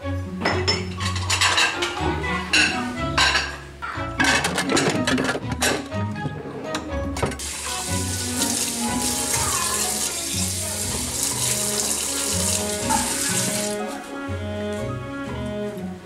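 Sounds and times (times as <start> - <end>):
faucet running into sink: 7.4 - 13.8
hands rinsed under water: 7.4 - 14.0.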